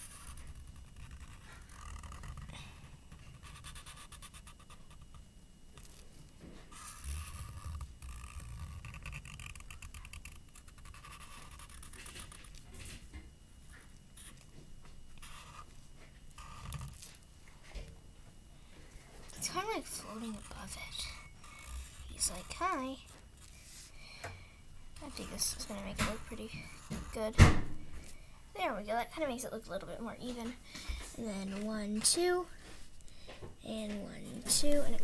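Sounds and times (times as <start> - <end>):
marker scratching on paper: 0.0 - 2.5, 3.2 - 5.1, 6.7 - 12.6, 15.2 - 15.7, 19.4 - 23.9, 25.0 - 27.3.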